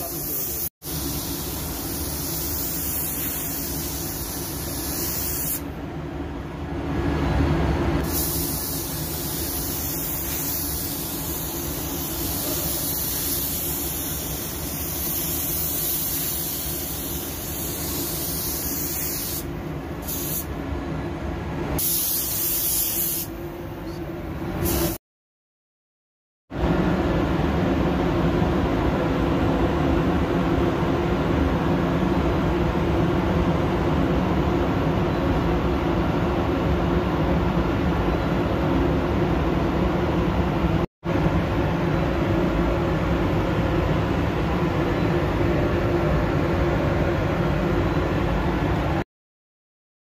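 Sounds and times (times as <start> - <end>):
paint spray gun hissing: 0.0 - 5.6, 8.0 - 20.5, 21.8 - 23.3.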